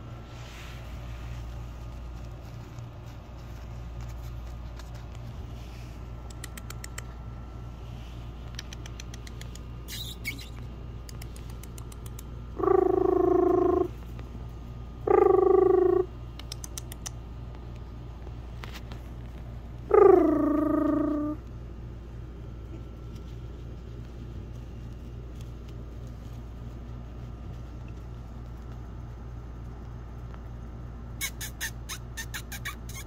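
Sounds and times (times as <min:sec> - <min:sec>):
light clicks and scratches: 0:00.5 - 0:07.2, 0:22.6 - 0:30.5
puppy whining: 0:09.3 - 0:10.7, 0:12.6 - 0:14.0, 0:19.8 - 0:21.5, 0:31.2 - 0:33.0.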